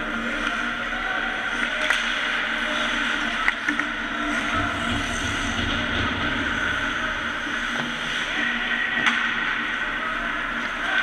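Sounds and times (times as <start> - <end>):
steady hum: 0.0 - 11.0
hockey stick clacks: 1.6 - 2.4.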